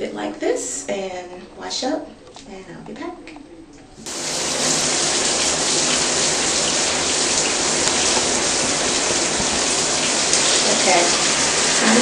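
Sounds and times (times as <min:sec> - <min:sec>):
water pouring and splashing: 0:04.1 - 0:12.0.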